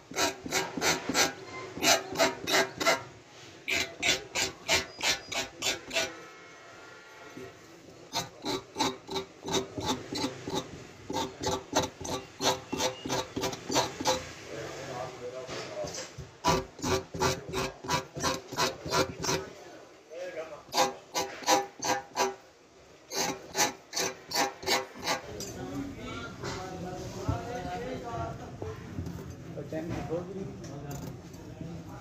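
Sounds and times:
rasping strokes on tyre rubber: 0.0s - 14.9s, 15.8s - 19.6s, 20.7s - 22.4s, 23.1s - 25.3s.

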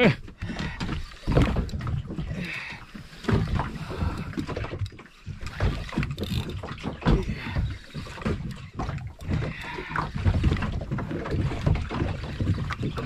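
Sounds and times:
water sloshing against boat hull: 0.0s - 13.0s.

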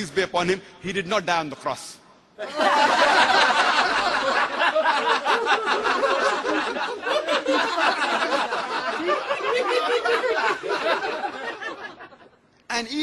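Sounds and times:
audience laughing: 2.4s - 12.4s.

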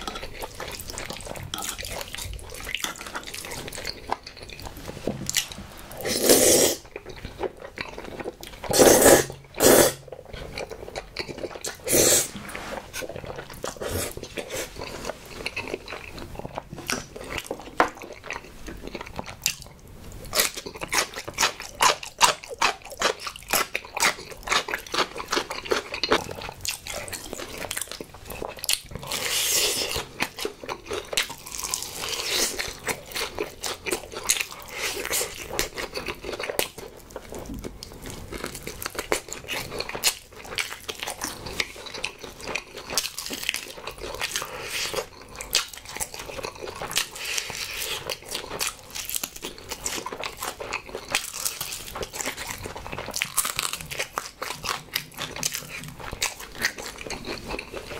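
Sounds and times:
wet chewing and crunching: 0.0s - 57.9s
slurping pasta: 5.8s - 6.9s, 8.6s - 16.7s.

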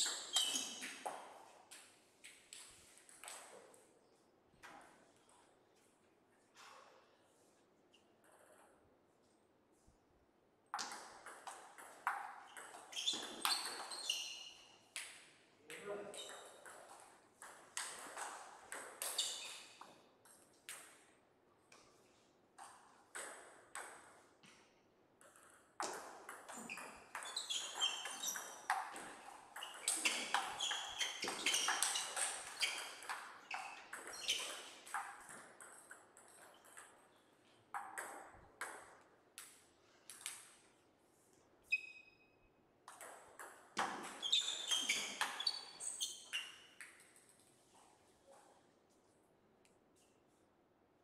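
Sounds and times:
table tennis ball bouncing: 10.7s - 15.3s, 16.2s - 21.1s, 22.6s - 24.6s, 25.2s - 37.1s, 37.7s - 40.6s, 42.8s - 47.4s.

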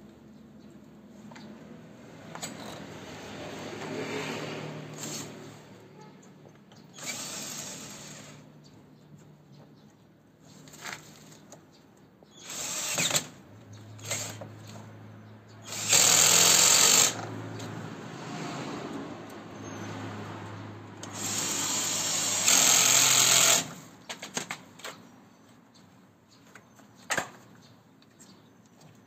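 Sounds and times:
cordless drill driving bolts: 6.8s - 8.5s, 12.4s - 13.4s, 14.0s - 14.5s, 15.6s - 17.3s, 21.0s - 23.9s.

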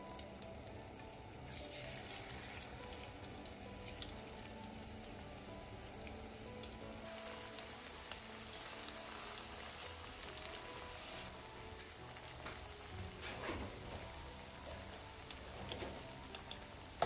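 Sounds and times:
fritters sizzling in hot oil: 0.0s - 17.0s
oil crackles and pops: 6.0s - 17.0s.

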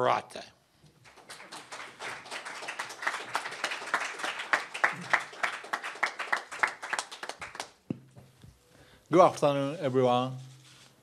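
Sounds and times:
audience applauding: 1.0s - 7.8s.

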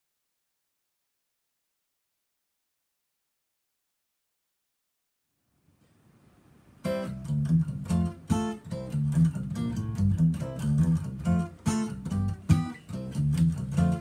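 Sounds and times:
acoustic guitar playing: 6.8s - 14.0s.

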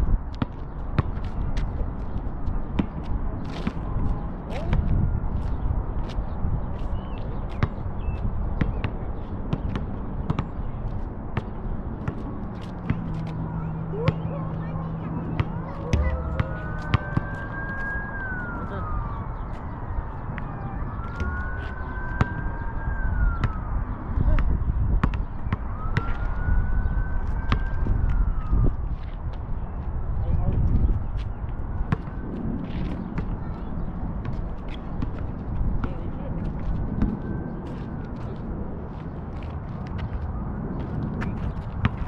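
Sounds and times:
basketball bouncing on asphalt: 0.3s - 6.2s, 7.5s - 18.0s, 20.4s - 21.4s, 24.2s - 26.4s, 27.4s - 28.2s, 30.6s - 33.6s, 34.2s - 37.3s, 39.8s - 42.0s
basketball bouncing on court: 8.6s - 10.5s, 11.4s - 13.3s, 15.3s - 17.4s, 24.3s - 26.1s
siren wailing: 13.4s - 29.2s, 36.8s - 38.3s.

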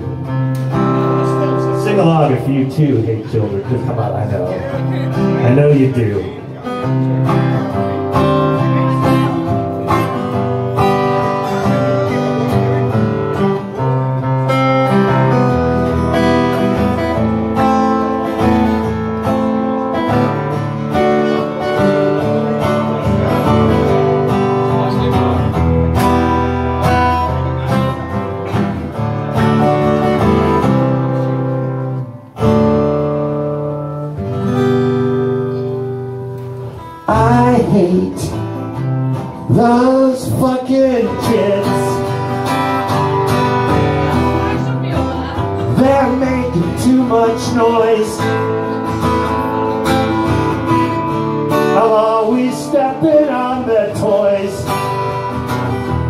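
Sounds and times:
acoustic guitar strumming chords: 0.0s - 56.0s.

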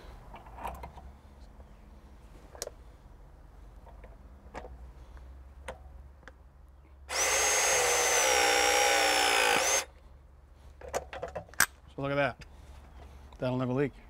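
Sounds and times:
pipe press tool motor whine: 7.1s - 9.9s.

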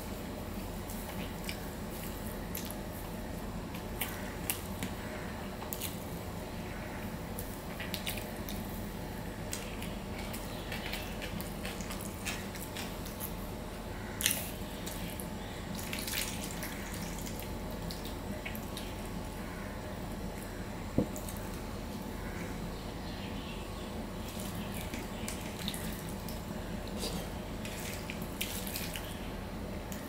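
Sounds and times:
wet squishing of rice: 7.4s - 21.6s, 24.2s - 29.3s.

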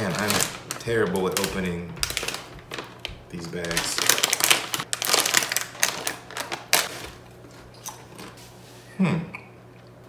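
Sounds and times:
snack bag crinkling: 0.0s - 8.4s.

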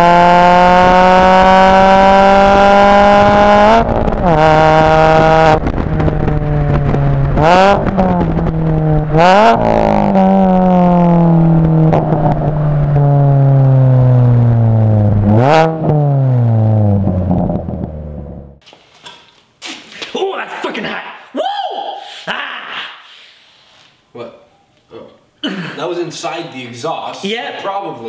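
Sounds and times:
car engine revving: 0.0s - 18.6s.

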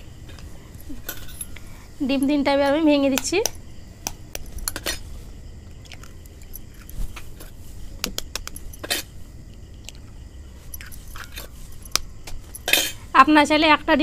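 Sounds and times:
eggs cracking against a bowl: 5.7s - 6.9s.

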